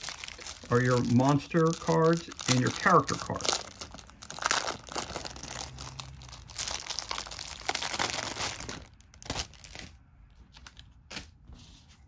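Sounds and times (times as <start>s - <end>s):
plastic wrap crinkling and tearing: 0.0s - 10.0s.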